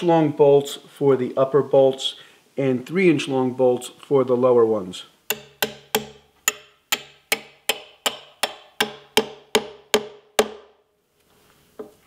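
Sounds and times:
hammer striking metal bolt: 5.3s - 10.7s.

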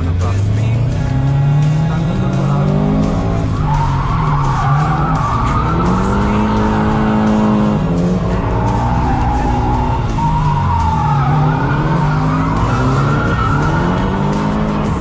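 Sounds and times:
car engine revving: 0.0s - 15.0s
tyres squealing: 1.1s - 15.0s.

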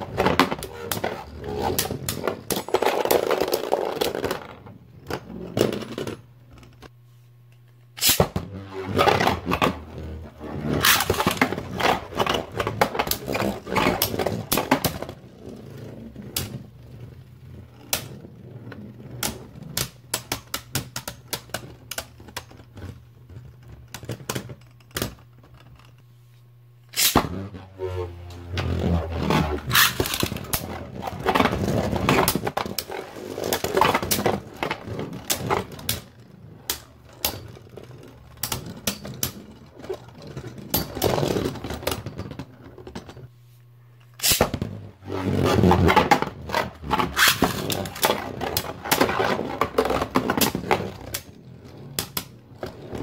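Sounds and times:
spinning tops clacking together: 8.0s - 8.3s, 26.9s - 27.2s
spinning tops scraping whir: 26.9s - 37.6s, 45.2s - 48.0s.

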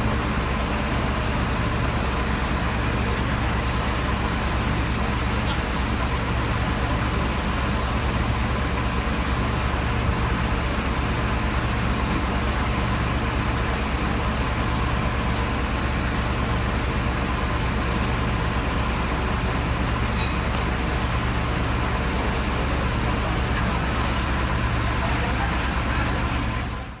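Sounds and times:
heavy truck engine droning: 0.0s - 27.0s.

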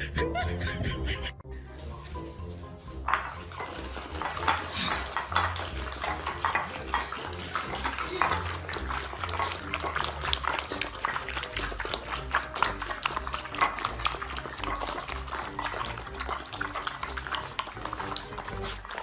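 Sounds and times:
puppies lapping and chewing: 1.6s - 19.0s.

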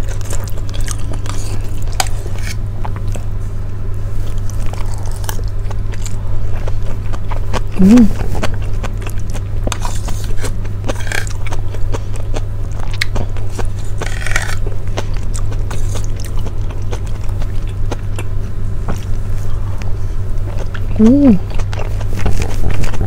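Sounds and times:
chewing and mouth sounds: 0.0s - 3.3s, 4.2s - 23.0s
steady low hum: 0.0s - 23.0s
fork scraping plate: 2.0s - 2.6s.

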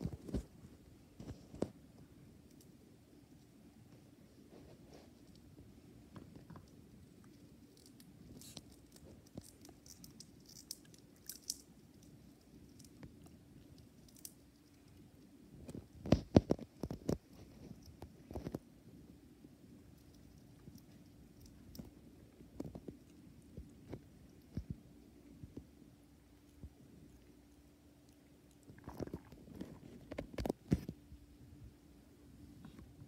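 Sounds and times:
low steady hum: 0.0s - 33.0s
hamster nibbling seeds: 1.3s - 31.0s
hamster cracking seeds: 6.1s - 18.7s.

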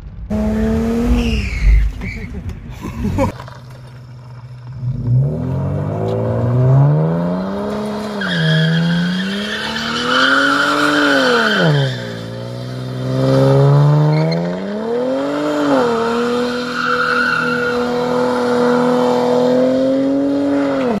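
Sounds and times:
car engine revving: 0.0s - 2.0s, 3.4s - 21.0s
tyres squealing: 8.1s - 12.2s, 15.6s - 18.8s.

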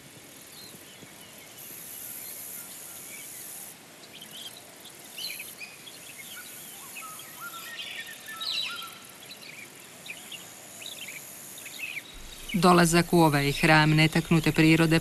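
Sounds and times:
steady insect hiss: 0.0s - 15.0s
birds chirping and calling: 12.2s - 15.0s.

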